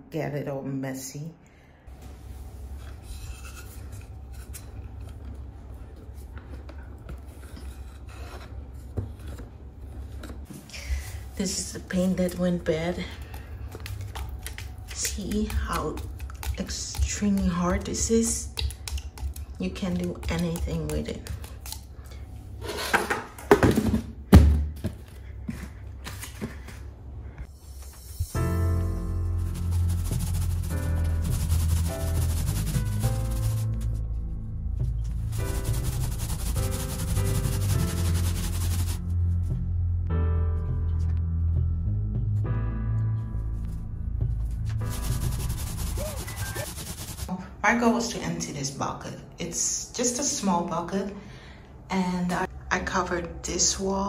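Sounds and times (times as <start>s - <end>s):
rubbing and scraping: 29.3s - 34.0s, 35.2s - 39.2s, 44.6s - 47.3s.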